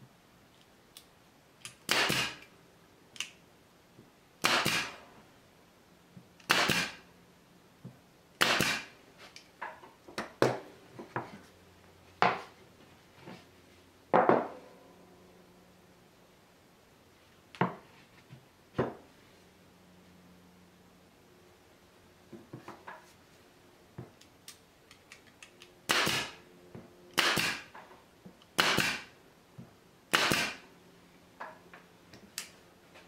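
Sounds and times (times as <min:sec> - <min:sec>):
pin nailer firing into plywood: 0:01.9 - 0:02.4, 0:04.4 - 0:05.0, 0:06.4 - 0:07.0, 0:08.4 - 0:08.9, 0:25.9 - 0:26.4, 0:27.2 - 0:27.7, 0:28.6 - 0:29.1, 0:30.1 - 0:30.6.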